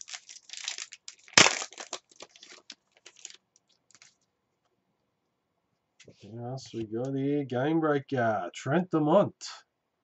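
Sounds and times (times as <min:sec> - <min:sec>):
wrapper tearing and crinkling: 0:00.0 - 0:04.2.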